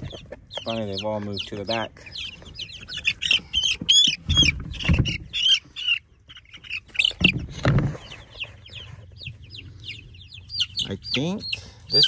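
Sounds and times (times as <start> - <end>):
handling thumps and rumbles: 0.0 - 5.4, 6.9 - 9.6
chicks peeping: 0.0 - 12.0.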